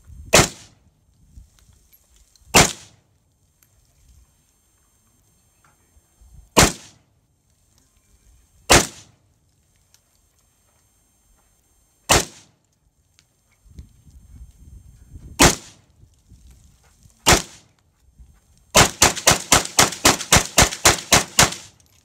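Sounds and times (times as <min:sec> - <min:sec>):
rifle gunshots: 0:00.3 - 0:00.7, 0:02.5 - 0:03.0, 0:06.6 - 0:07.0, 0:08.7 - 0:09.2, 0:12.1 - 0:12.5, 0:15.4 - 0:15.8, 0:17.2 - 0:17.6, 0:18.8 - 0:21.8.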